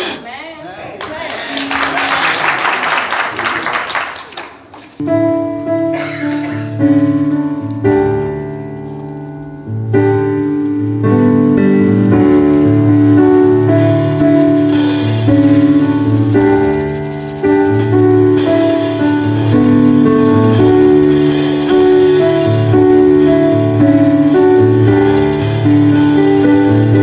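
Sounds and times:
keyboard chords over bass line: 5.0 - 27.0
fast high percussion rhythm: 13.9 - 27.0.

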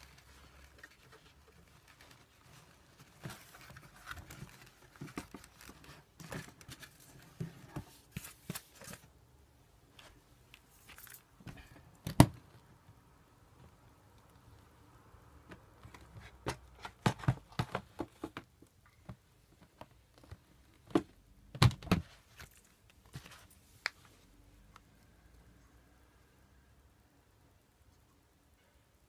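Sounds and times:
objects and packaging being handled: 0.0 - 25.1.

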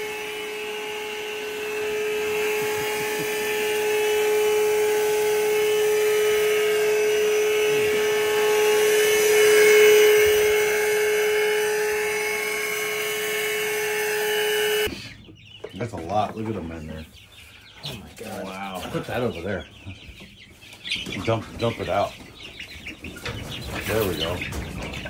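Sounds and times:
wet dry vacuum running: 0.0 - 14.9.

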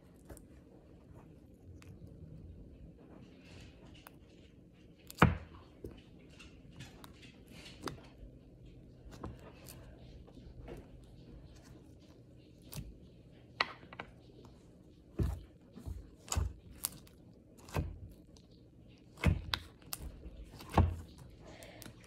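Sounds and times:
fingers squishing slime: 14.3 - 22.0.

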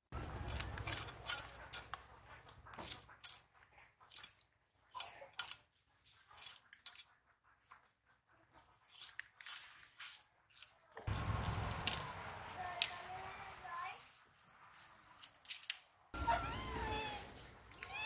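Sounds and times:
fish scraped against blade: 0.4 - 2.0, 2.7 - 3.5, 4.1 - 7.1, 8.8 - 10.8.

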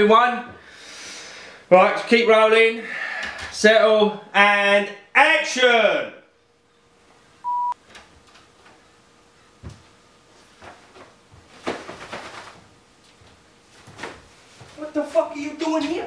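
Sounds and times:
electronic beep: 7.4 - 7.8
man walking in rustling: 8.0 - 15.4.

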